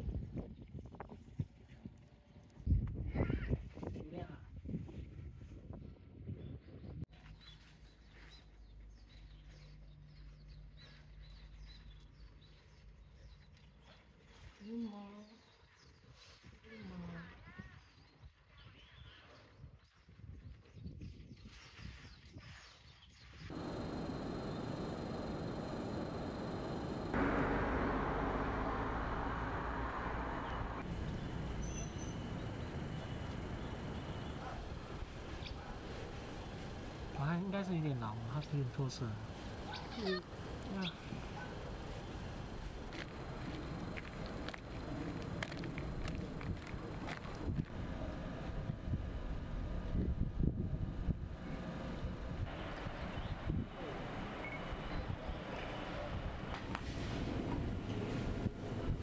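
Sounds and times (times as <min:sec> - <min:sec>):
small birds chirping: 0:07.2 - 0:19.9, 0:21.1 - 0:27.2, 0:30.2 - 0:36.2, 0:37.1 - 0:46.4
low steady hum: 0:23.5 - 0:55.2
rushing traffic or wind: 0:23.5 - 0:59.0.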